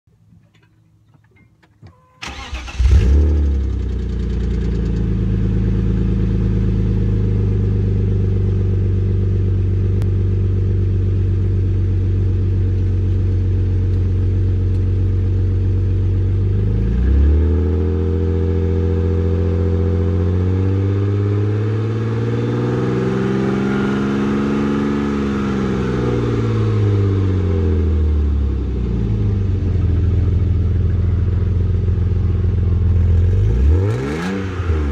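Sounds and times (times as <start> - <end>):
engine starter cranking: 1.9 - 3.3
car engine idling and revving: 2.2 - 34.9.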